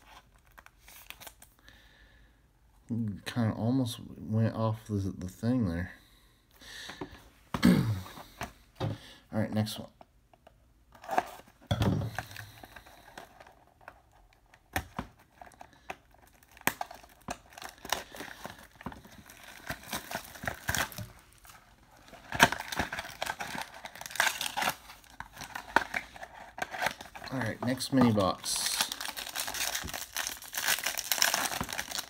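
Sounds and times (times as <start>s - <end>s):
plastic shrink wrap crinkling: 15.3s - 32.0s.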